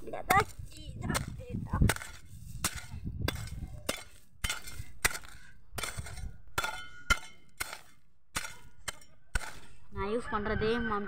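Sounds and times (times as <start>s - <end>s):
hoe chopping into soil: 0.3s - 9.8s.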